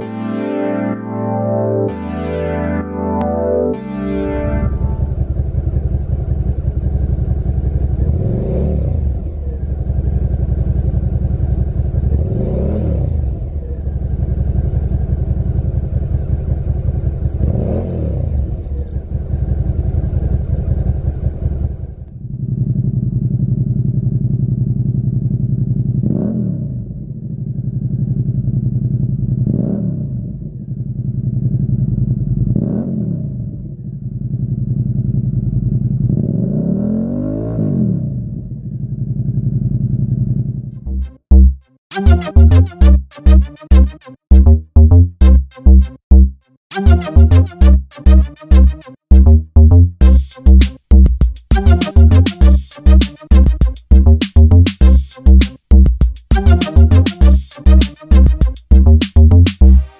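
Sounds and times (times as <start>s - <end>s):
motorcycle engine idling and revving: 5.0s - 41.6s, 49.1s - 51.8s.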